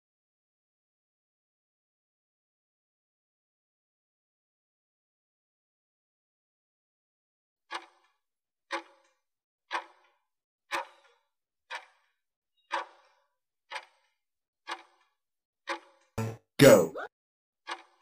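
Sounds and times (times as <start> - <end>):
clock ticks: 7.7 - 16.8, 17.7 - 18.0.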